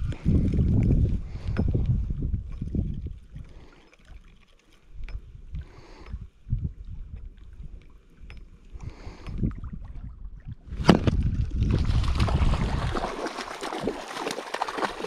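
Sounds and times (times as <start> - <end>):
wind buffeting microphone: 0.0 - 3.7, 4.9 - 14.0
small waves lapping: 11.7 - 15.0.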